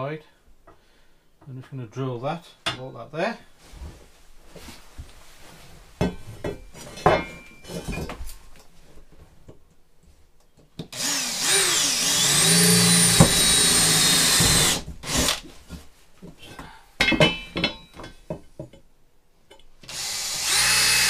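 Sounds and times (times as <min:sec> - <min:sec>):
metal frame clinks and knocks: 0:06.0 - 0:08.5, 0:17.0 - 0:18.8
power drill boring into steel: 0:10.9 - 0:15.4, 0:19.9 - 0:21.0.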